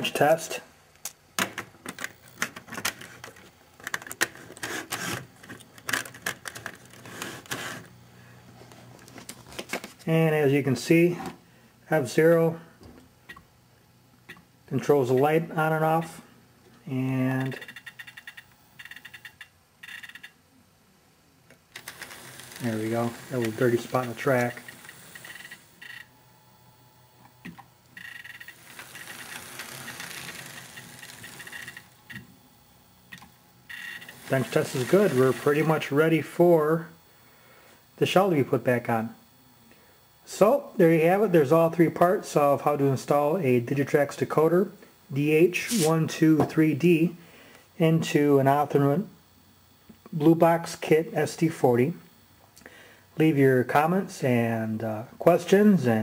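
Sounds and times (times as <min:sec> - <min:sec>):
small electric motor whirring: 0:21.7 - 0:26.1, 0:28.0 - 0:32.2, 0:33.7 - 0:35.8.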